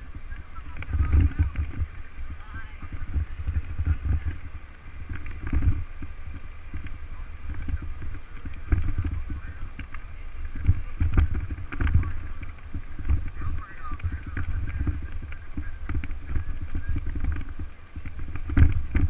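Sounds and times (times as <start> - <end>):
low rumble: 0.0 - 19.0
thumps and rattles over pavement: 0.0 - 19.0
wind buffeting microphone: 0.0 - 19.0.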